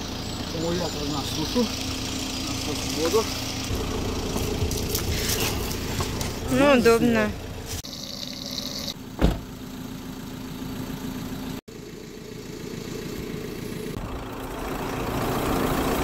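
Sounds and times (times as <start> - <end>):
motor humming: 1.7 - 6.5
thump: 9.2 - 9.5.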